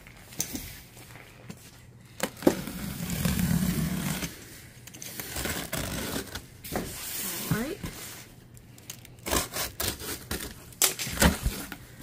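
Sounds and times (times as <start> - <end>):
blade scraping tape and cardboard: 2.5 - 4.4, 5.0 - 6.4, 9.2 - 11.8.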